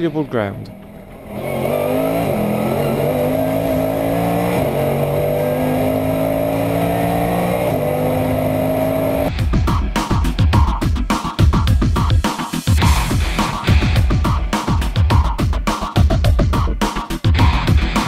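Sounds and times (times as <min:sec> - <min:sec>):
race car engine accelerating: 0:00.7 - 0:09.3
loud music: 0:01.5 - 0:18.0.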